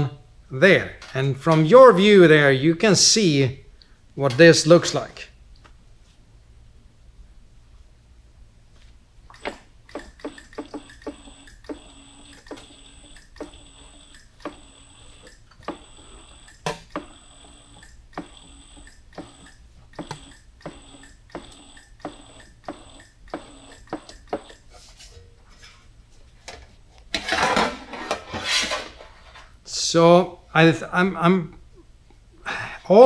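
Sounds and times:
bead roller motor whine: 9.4 - 24.7.

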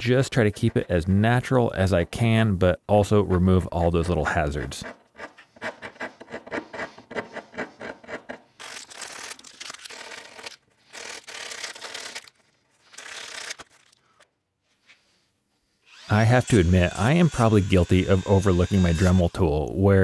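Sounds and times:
hand rasp scraping wood: 4.8 - 9.3, 16.0 - 19.3.

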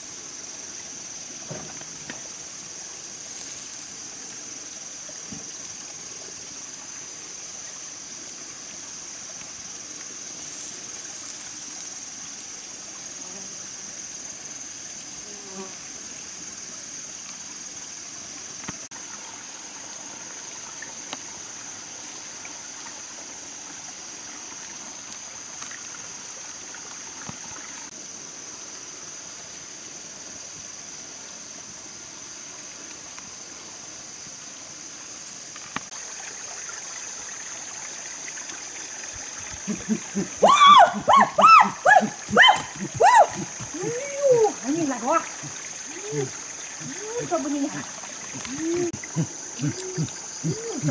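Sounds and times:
running water hiss: 0.0 - 50.9
high-pitched insect drone: 39.1 - 50.9.

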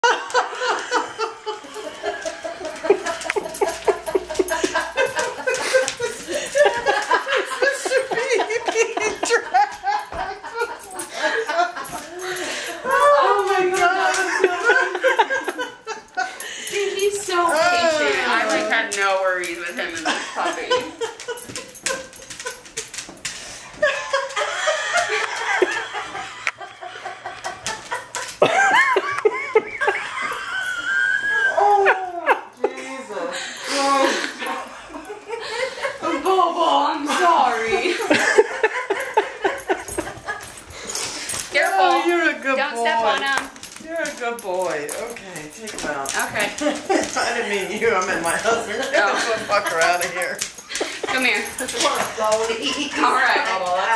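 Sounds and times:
woman laughing: 0.0 - 18.8, 19.7 - 23.0, 23.8 - 33.0, 37.1 - 40.6, 46.2 - 53.9
dog claws clicking on tile: 1.6 - 31.1, 37.7 - 53.9.

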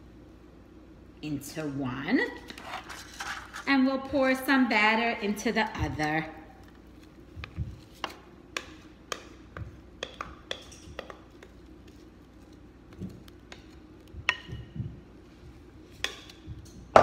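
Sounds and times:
spatula tapping glass bowl: 8.5 - 11.5, 14.2 - 14.8.

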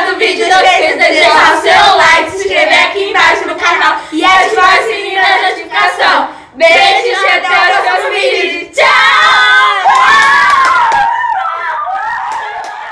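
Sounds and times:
girls singing together: 0.0 - 10.1
hands clapping: 9.9 - 12.9.

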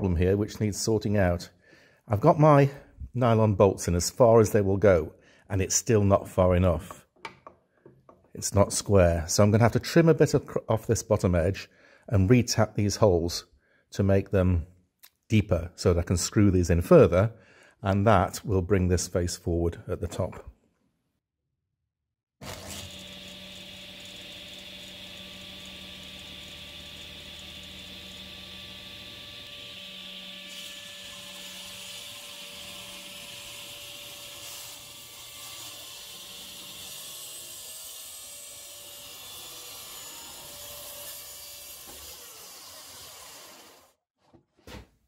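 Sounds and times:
table saw running: 22.4 - 37.4.

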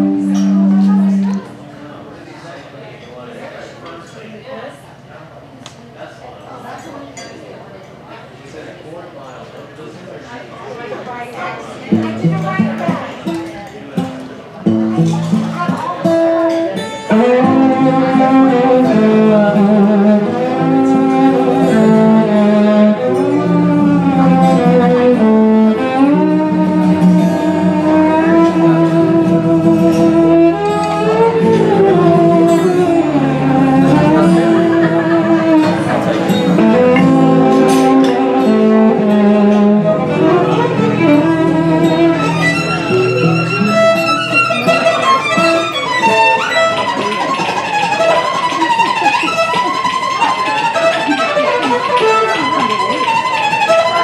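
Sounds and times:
violin playing fast melody: 17.1 - 54.0.

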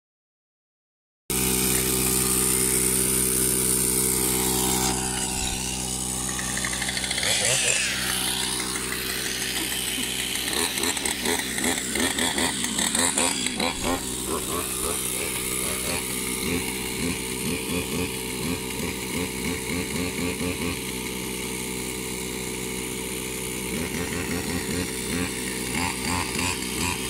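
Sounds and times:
air compressor motor running: 1.3 - 27.0
uneven pulsing: 1.5 - 20.9.

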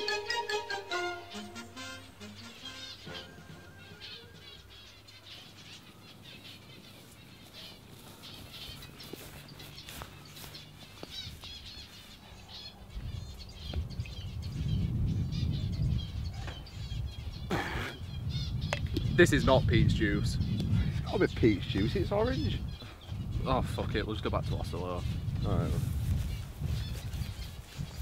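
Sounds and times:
small birds chirping: 1.3 - 28.0
wind on microphone rumble: 12.8 - 28.0.

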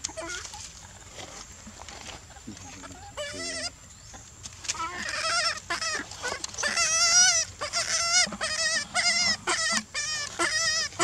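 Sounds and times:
young monkey crying: 2.9 - 3.8, 4.7 - 11.0.

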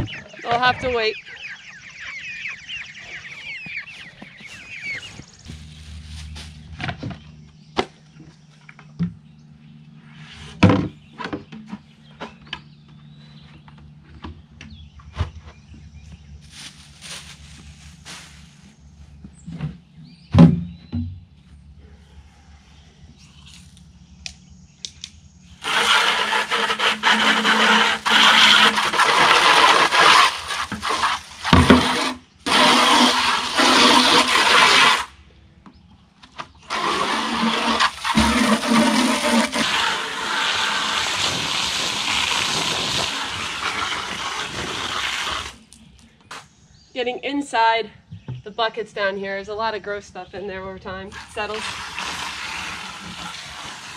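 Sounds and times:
garden hose spraying on plastic: 16.5 - 18.4, 25.6 - 35.1, 36.7 - 45.6, 51.1 - 53.9
plastic buckets knocking: 25.8 - 35.0.

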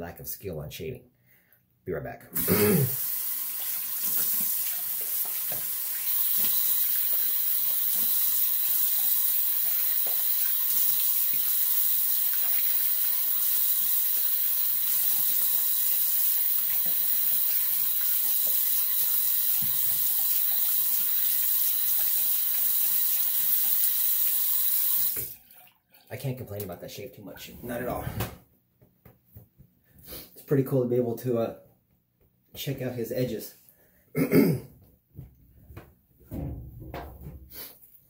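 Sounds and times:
sink tap running: 3.0 - 25.4.

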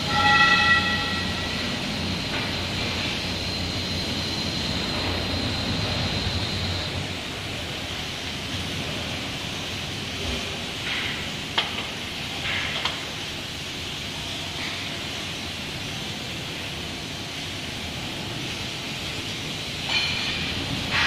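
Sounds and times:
thin high whine: 0.0 - 7.6
construction hoist mechanical hum: 0.0 - 21.0.

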